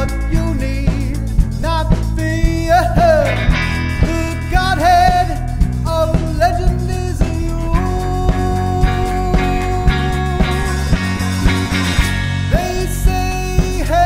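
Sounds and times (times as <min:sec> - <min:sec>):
bass: 0:00.0 - 0:14.0
bending lead guitar melody: 0:00.0 - 0:14.0
drum hits: 0:00.0 - 0:14.0.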